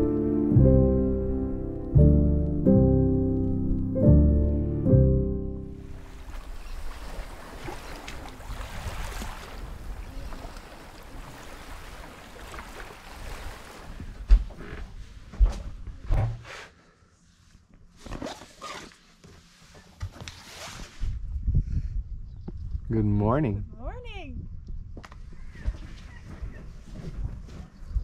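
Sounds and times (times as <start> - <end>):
wind rumble on microphone: 20.8 - 28.0.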